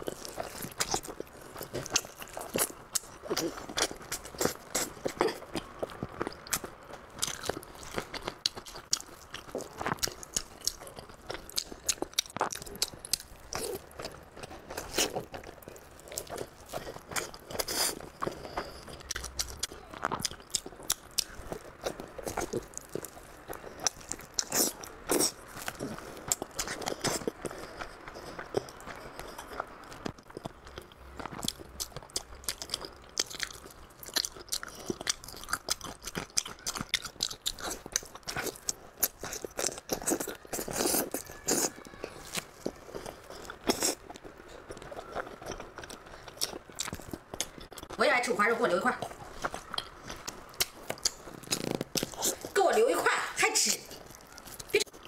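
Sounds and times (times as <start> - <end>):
crunchy chewing: 0.0 - 52.7, 53.8 - 55.0
wet mouth sounds: 49.0 - 52.6.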